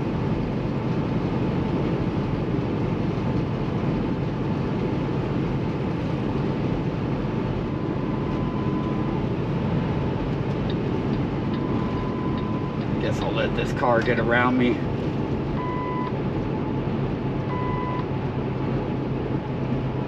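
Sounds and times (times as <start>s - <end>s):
truck engine and road drone: 0.0s - 20.0s
faint steady whine: 7.4s - 18.1s.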